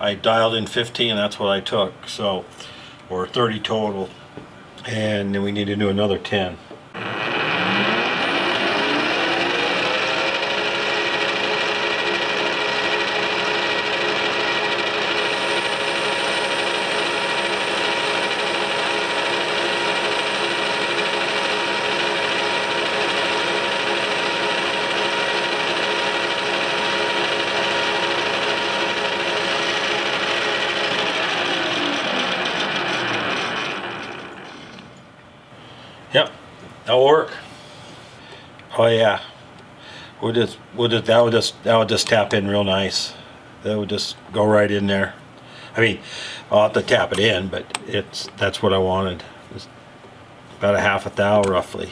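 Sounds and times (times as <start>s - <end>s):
metal lathe gear hum and whine: 7.0s - 35.0s.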